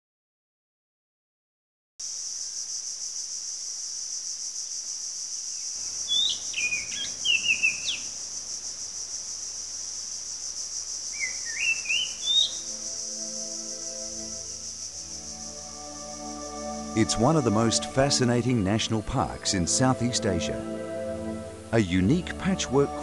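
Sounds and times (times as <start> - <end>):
high insect drone: 2.0 - 23.0
bird whistling calls: 6.0 - 8.1, 11.1 - 13.1.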